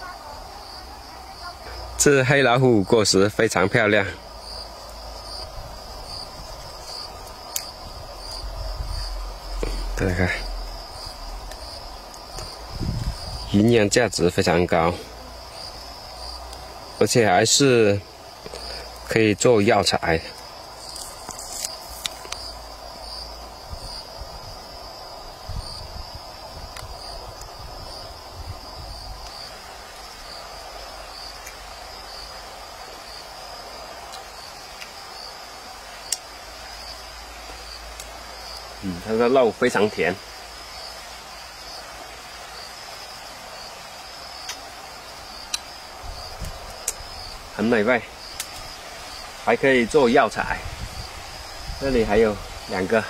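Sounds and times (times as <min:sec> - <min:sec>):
crickets trilling: 0:00.0 - 0:53.0
insects chirring: 0:00.0 - 0:53.0
fruit peel pulled apart: 0:20.8 - 0:22.4.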